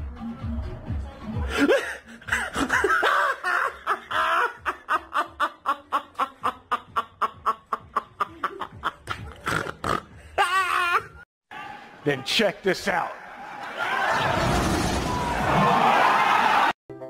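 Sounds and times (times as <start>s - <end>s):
woman laughing: 1.5s - 9.5s.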